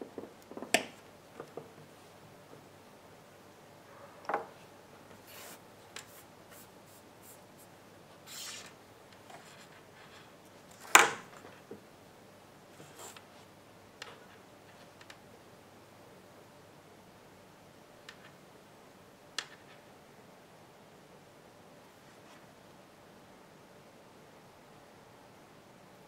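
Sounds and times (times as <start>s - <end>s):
rubbing and rustling of wires: 5.2s - 11.7s.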